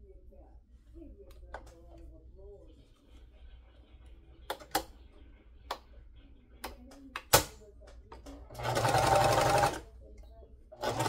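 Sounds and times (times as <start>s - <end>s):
sewing machine stitching: 8.5s - 9.8s, 10.8s - 11.0s.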